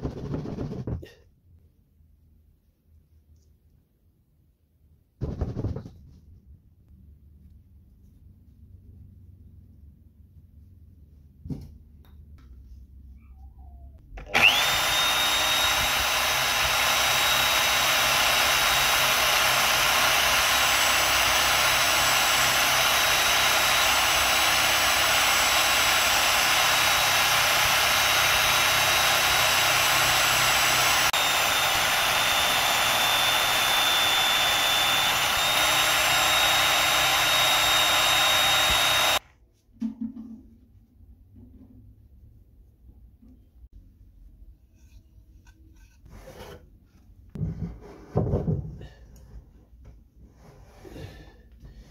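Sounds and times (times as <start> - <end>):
drill press motor whine: 14.2 - 39.2
wood sanding: 14.4 - 39.2.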